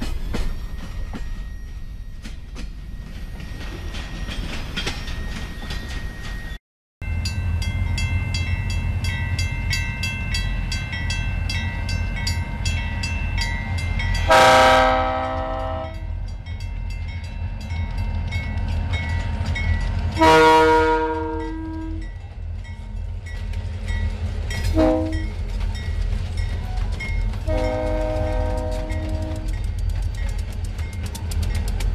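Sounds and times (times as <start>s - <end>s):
crossing bell dinging: 0.1s - 31.8s
locomotive air horn blasts: 14.2s - 16.1s, 20.2s - 22.0s, 24.6s - 25.3s, 27.4s - 29.6s.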